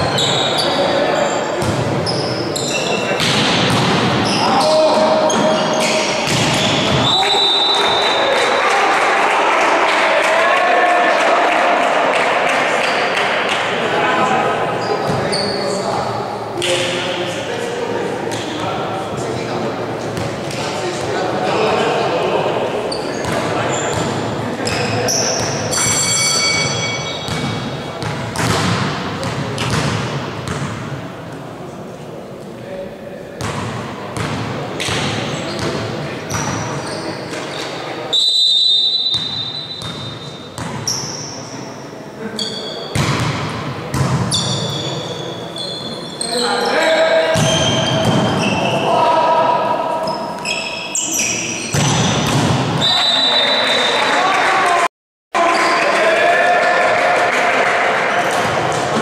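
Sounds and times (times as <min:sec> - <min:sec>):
sneakers squeaking on wooden court: 0:00.0 - 0:08.2, 0:14.8 - 0:15.8, 0:22.9 - 0:30.7, 0:34.2 - 0:37.9, 0:39.0 - 0:41.7, 0:42.4 - 0:48.9, 0:50.0 - 0:53.1
volleyball struck hard: 0:27.3 - 0:30.7, 0:51.7 - 0:52.8.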